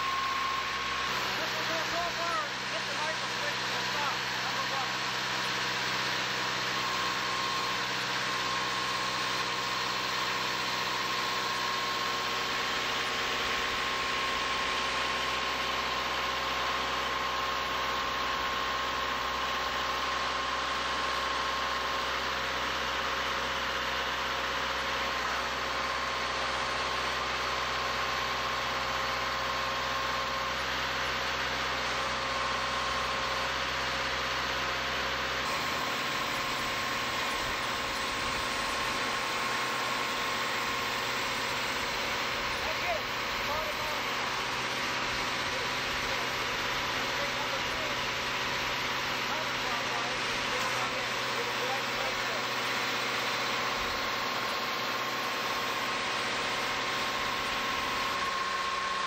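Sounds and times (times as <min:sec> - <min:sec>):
thin steady whine: 0:00.0 - 0:10.5, 0:35.4 - 0:59.0
truck engine idling: 0:00.0 - 0:59.0.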